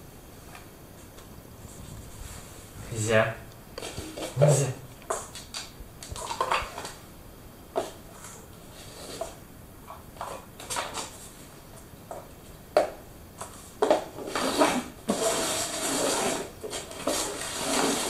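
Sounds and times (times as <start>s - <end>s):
paper cups scraping on floor: 3.8s - 4.6s, 7.8s - 9.4s, 13.4s - 18.0s.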